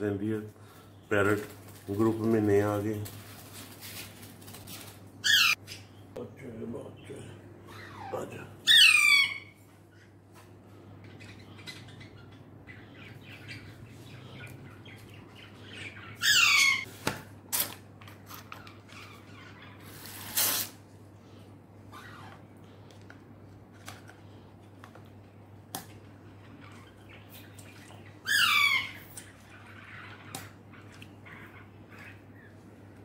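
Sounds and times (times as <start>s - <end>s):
parrot harsh call: 5.2s - 5.6s, 7.7s - 9.6s, 15.9s - 16.9s, 28.2s - 29.1s.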